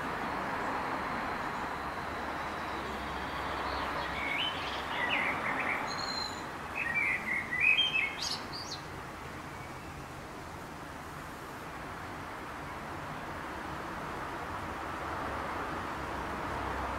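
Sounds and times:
steady background hiss: 0:00.0 - 0:16.9
small songbirds chirping: 0:00.5 - 0:10.3.

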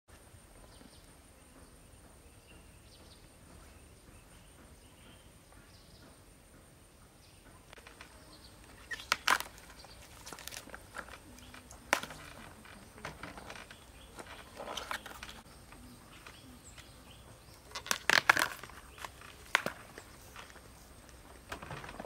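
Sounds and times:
faint chirps: 0:00.2 - 0:21.5
banana bracts crackling and snapping: 0:07.7 - 0:22.0.

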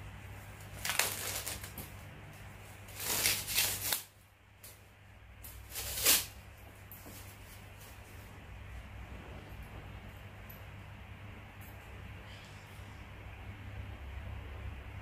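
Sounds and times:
plastic wrapping crinkling: 0:00.6 - 0:02.0, 0:02.8 - 0:04.2, 0:05.6 - 0:06.4.

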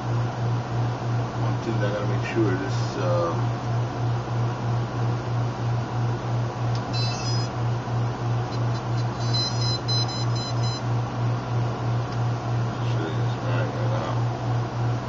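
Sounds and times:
high electronic beeps: 0:06.9 - 0:07.5, 0:08.5 - 0:10.8
quick repeated beeps: 0:06.9 - 0:07.5, 0:08.5 - 0:10.8.

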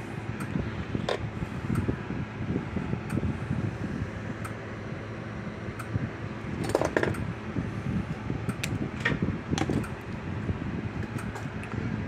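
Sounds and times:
fan-like hum: 0:00.0 - 0:12.0
clicks and rustles of tools: 0:06.6 - 0:07.2.

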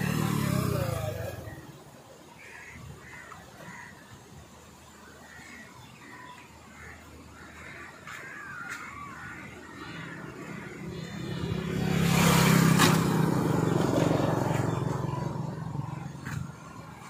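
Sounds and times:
motorcycle passing by: 0:00.0 - 0:01.7, 0:08.3 - 0:17.0.

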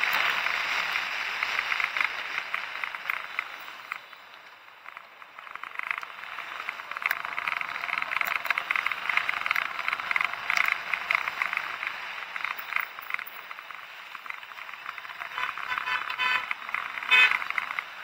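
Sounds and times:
bicycle rattling on rough road: 0:00.0 - 0:18.0.

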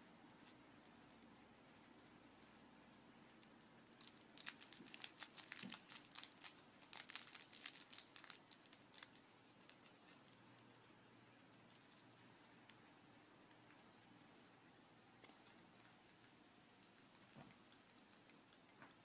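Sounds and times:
plastic wrapper crumpling: 0:03.4 - 0:10.6.

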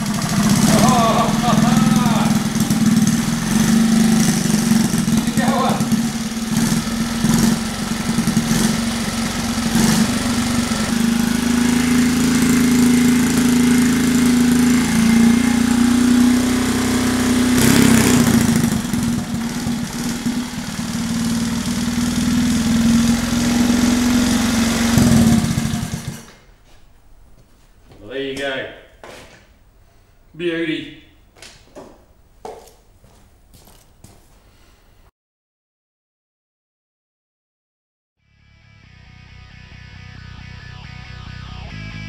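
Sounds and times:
small engine idling and revving: 0:00.0 - 0:26.4.

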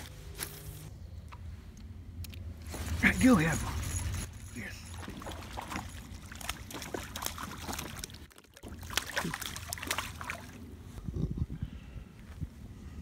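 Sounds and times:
fish splashing in water: 0:05.0 - 0:10.6.

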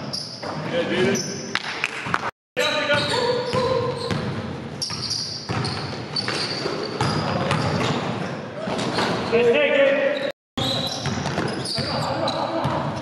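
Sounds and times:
sneakers squeaking: 0:00.0 - 0:13.0
basketball bouncing on gym floor: 0:02.9 - 0:09.2, 0:10.6 - 0:13.0.

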